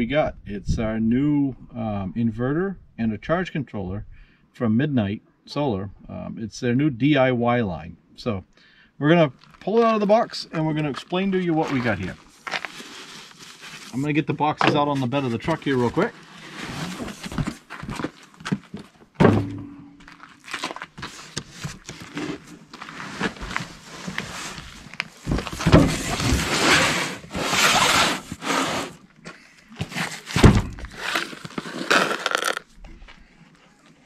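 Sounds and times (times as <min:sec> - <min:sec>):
cardboard packaging rustling: 0:10.8 - 0:14.2, 0:15.0 - 0:19.0, 0:20.0 - 0:29.0, 0:29.8 - 0:32.8
boxes thumping on wood: 0:17.2 - 0:20.1, 0:29.8 - 0:31.0.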